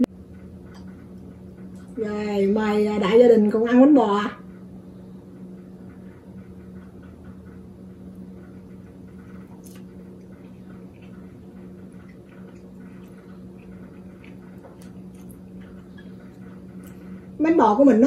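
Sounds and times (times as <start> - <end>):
steady low hum: 0.0 - 18.0
quiet chewing and mouth sounds: 6.8 - 17.3.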